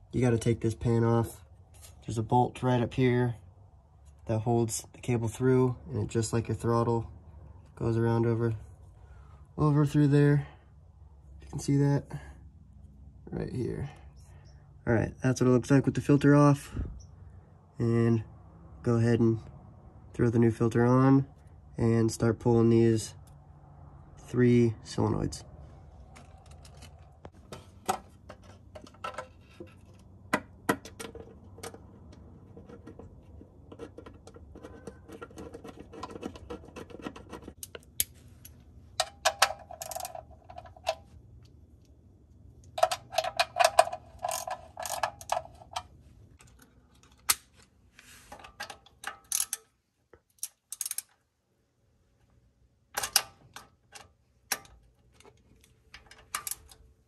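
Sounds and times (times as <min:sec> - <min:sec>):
socket ratchet clicking: 0:50.3 - 0:51.2
metallic clicks and taps: 0:53.0 - 0:56.8.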